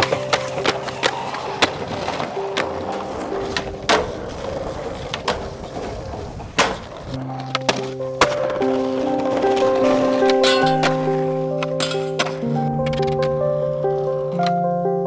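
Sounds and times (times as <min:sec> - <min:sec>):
skateboard grinding on ledge: 0:00.0 - 0:11.4
skateboard clacks: 0:00.0 - 0:13.3
skateboard wheels rolling on concrete: 0:00.0 - 0:14.6
music: 0:00.0 - 0:15.0.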